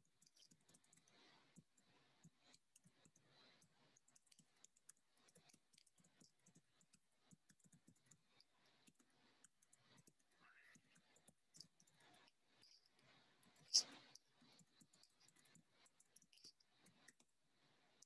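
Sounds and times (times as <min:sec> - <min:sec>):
keyboard typing clicks: 0:02.4 - 0:08.2.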